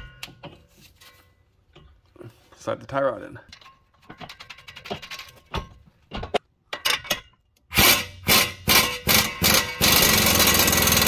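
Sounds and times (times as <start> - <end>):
impact wrench bursts: 7.7 - 11.0.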